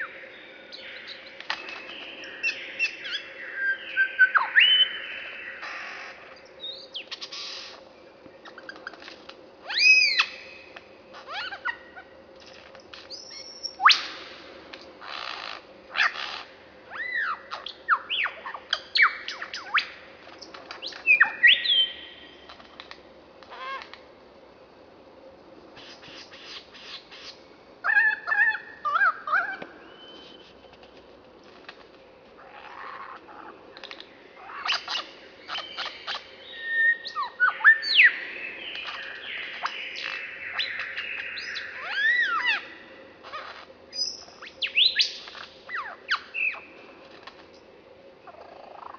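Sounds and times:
lyrebird singing: 0:00.0 - 0:07.8, 0:09.7 - 0:12.1, 0:15.0 - 0:23.9, 0:25.8 - 0:30.4, 0:32.4 - 0:46.7.

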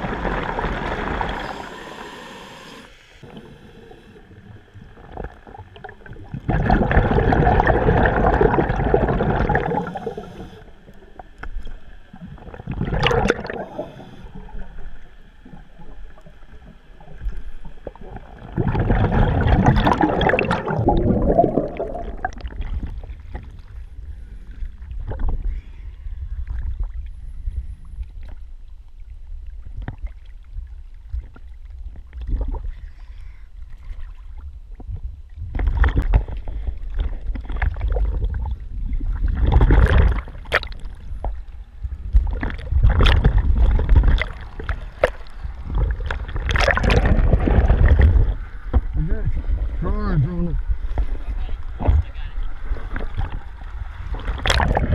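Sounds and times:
low steady rumble: 0:00.0 - 0:54.9.

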